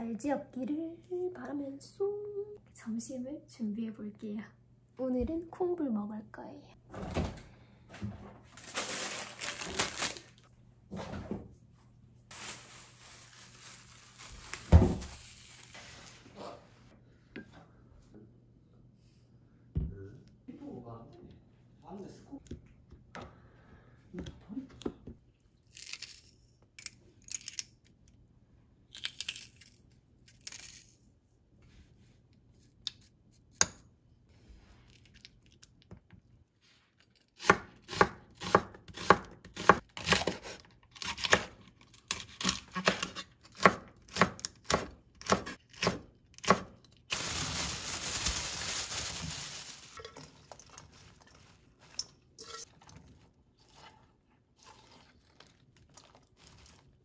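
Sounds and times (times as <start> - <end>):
spoon scraping glass bowl: 51.9 - 52.8.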